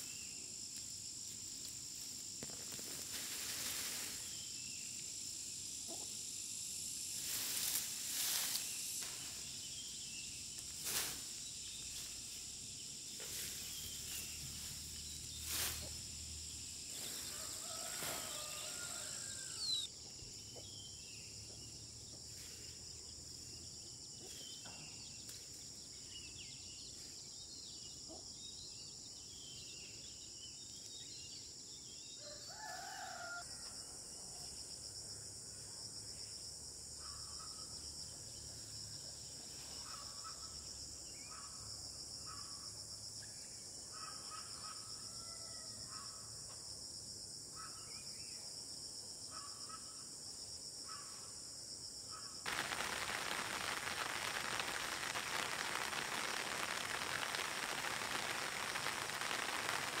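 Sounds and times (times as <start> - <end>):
loud steady hiss: 0.0 - 19.9, 52.4 - 60.0
insect drone: 0.0 - 60.0.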